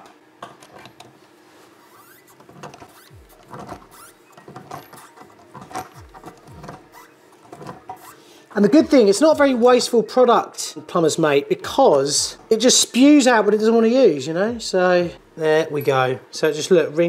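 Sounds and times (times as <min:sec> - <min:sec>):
faint squeaks and clicks: 0:01.9 - 0:08.2.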